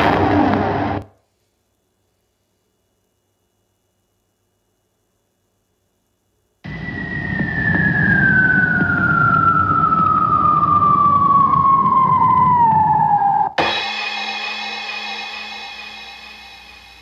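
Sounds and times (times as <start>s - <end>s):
explosion burst: 0.0s - 1.1s
rumbling noise: 0.0s - 1.1s, 6.7s - 13.6s
descending whistle: 6.6s - 13.6s
music: 13.6s - 17.0s.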